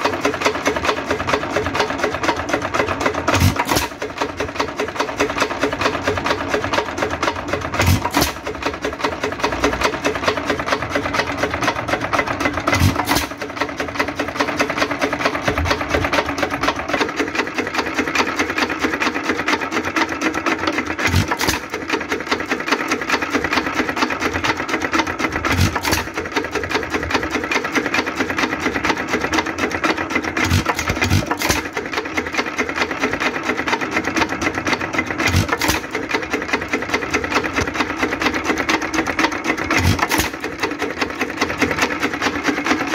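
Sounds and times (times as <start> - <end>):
engine clatter: 0.0 - 42.9.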